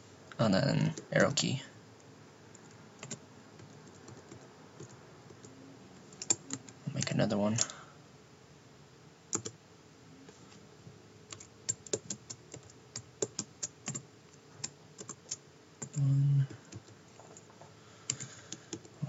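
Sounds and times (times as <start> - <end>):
computer keyboard keystrokes: 2.6 - 5.0, 6.1 - 6.6, 9.3 - 9.6, 11.3 - 14.0, 14.6 - 16.0.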